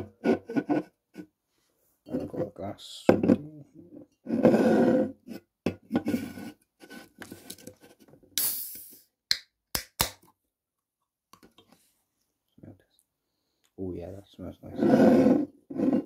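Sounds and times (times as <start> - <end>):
soda can opening hiss: 8.4 - 9.1.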